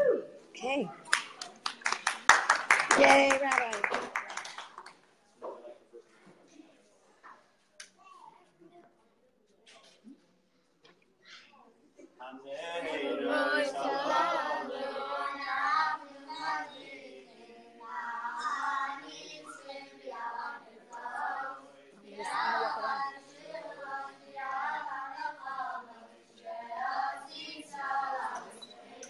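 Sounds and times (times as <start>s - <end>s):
group singing a song: 12.5s - 29.0s.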